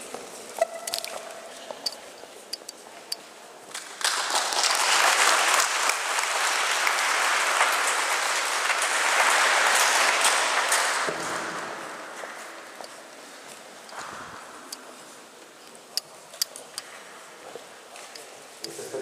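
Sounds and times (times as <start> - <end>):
audience applauding: 3.9 - 11.5.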